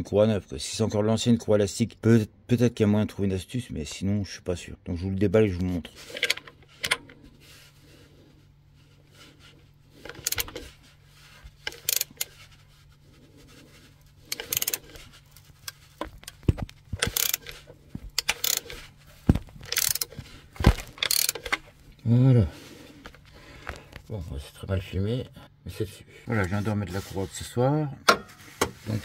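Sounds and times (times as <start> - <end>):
rustling: 5.9 - 21.9.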